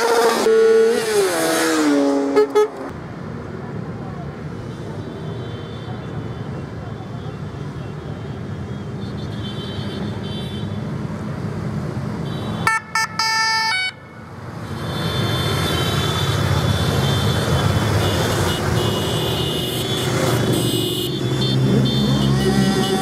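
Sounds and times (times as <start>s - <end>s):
horn toots: 2.2s - 2.9s.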